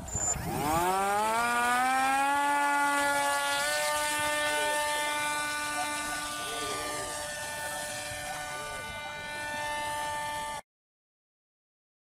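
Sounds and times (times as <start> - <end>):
electric motor high-pitched whine: 0.0 - 10.6.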